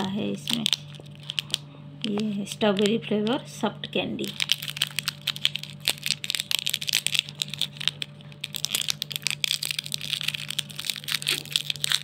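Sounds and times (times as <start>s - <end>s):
plastic wrapper crinkling: 0.0s - 3.0s, 4.2s - 12.0s.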